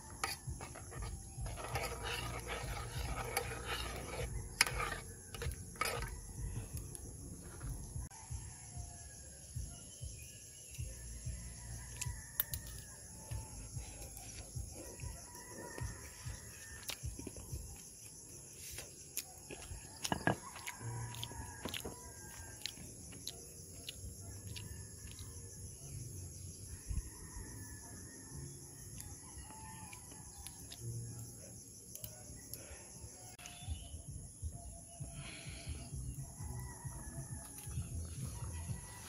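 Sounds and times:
rooster crowing: 0:07.9 - 0:09.6, 0:11.2 - 0:17.5, 0:19.5 - 0:22.9, 0:26.6 - 0:31.3, 0:35.3 - 0:39.0.

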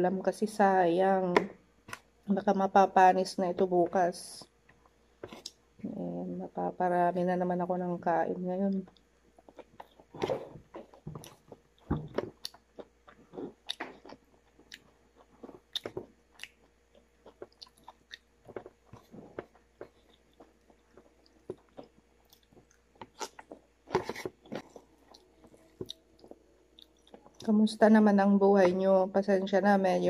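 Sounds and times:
person chewing with wet smacks: 0:08.8 - 0:27.5.

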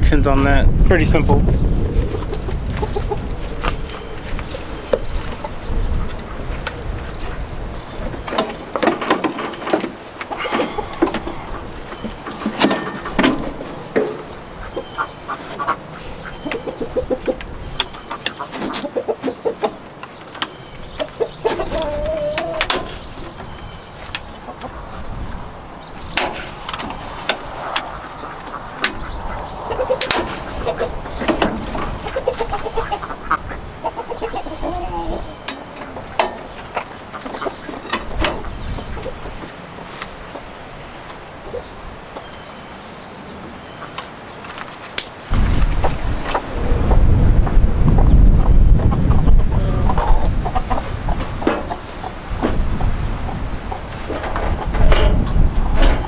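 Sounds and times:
poultry clucking: 0:01.3 - 0:44.1, 0:45.7 - 0:56.0.

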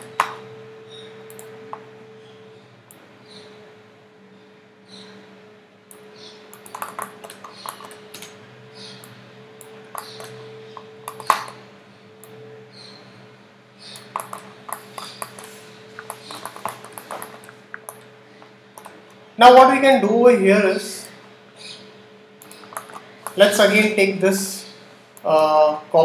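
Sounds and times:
steady electrical hum: 0:00.0 - 0:26.0
mouse and keyboard clicks: 0:06.6 - 0:08.3, 0:09.9 - 0:11.6, 0:13.9 - 0:18.1, 0:22.4 - 0:23.4.

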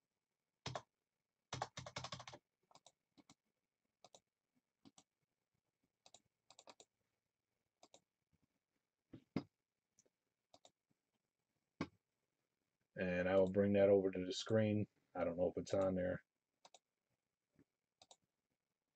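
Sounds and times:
faint computer keyboard typing: 0:00.6 - 0:00.9, 0:01.5 - 0:03.4, 0:04.0 - 0:04.2, 0:06.0 - 0:06.9, 0:10.5 - 0:10.8, 0:16.6 - 0:16.8, 0:18.0 - 0:18.2.

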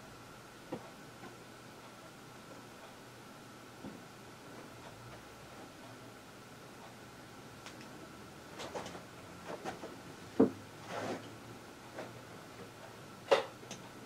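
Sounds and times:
soft clicks: 0:07.6 - 0:08.0.

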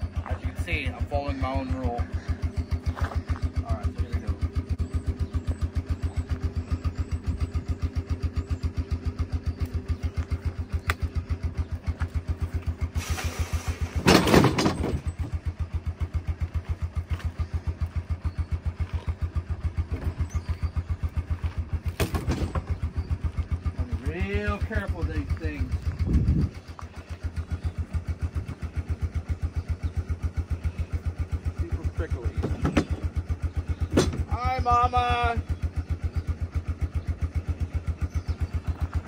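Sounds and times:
atv engine idling: 0:00.0 - 0:39.0
noisy engine burst: 0:12.8 - 0:15.1.

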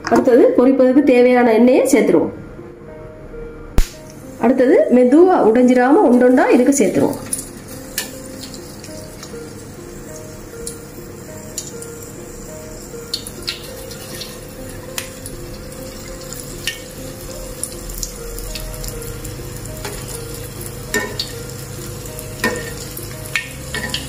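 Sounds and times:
faint background music: 0:00.0 - 0:24.0
food deep-frying in oil: 0:05.7 - 0:24.0
steel spoon clinking on pan: 0:20.9 - 0:21.3.

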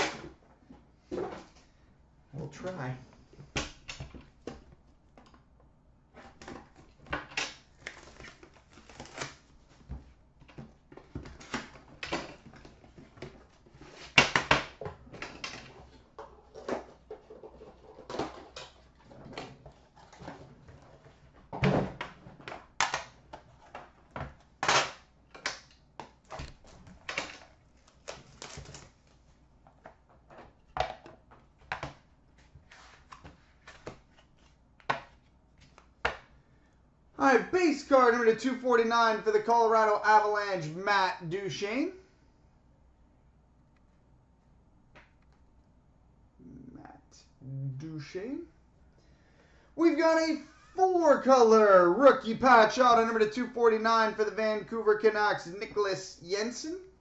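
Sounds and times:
plastic wrap being stripped off: 0:07.7 - 0:09.5, 0:26.3 - 0:29.2.

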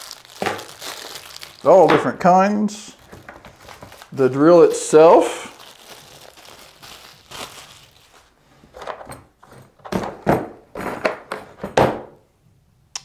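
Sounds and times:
plastic bag rustle: 0:00.0 - 0:02.1, 0:02.8 - 0:08.7.

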